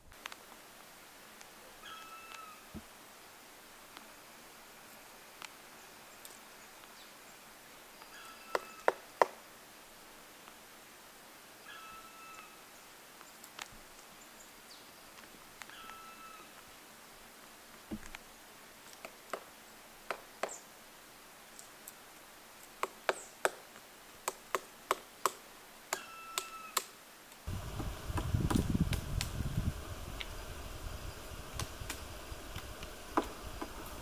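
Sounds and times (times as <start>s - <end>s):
low rumble: 27.5s - 34.0s
woodpecker pecking bark: 31.4s - 34.0s.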